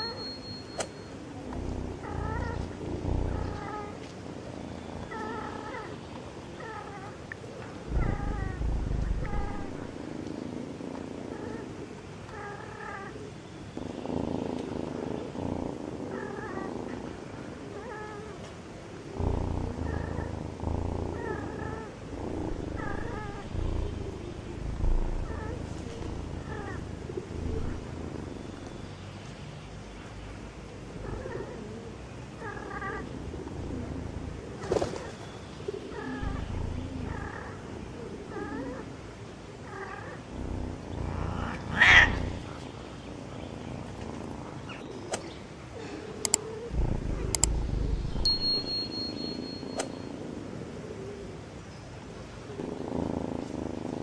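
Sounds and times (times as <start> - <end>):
cats meowing: 7.9 - 10.0, 19.2 - 28.7, 36.0 - 37.6, 39.8 - 42.6
low rumble: 7.9 - 10.0, 19.2 - 28.7, 36.2 - 37.7, 46.7 - 48.9
low thumps: 7.9 - 10.0, 22.1 - 28.7, 36.2 - 37.1, 46.8 - 48.7.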